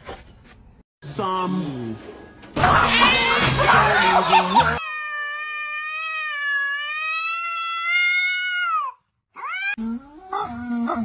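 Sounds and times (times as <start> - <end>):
cat rising cry: 4.8 - 9.8
cat yowling: 4.8 - 9.8.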